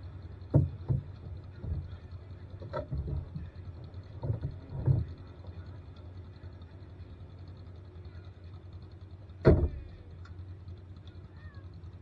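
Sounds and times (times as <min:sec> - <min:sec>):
engine idling rumble: 0:00.0 - 0:12.0
knocks and rattles: 0:00.4 - 0:05.3, 0:09.4 - 0:10.0.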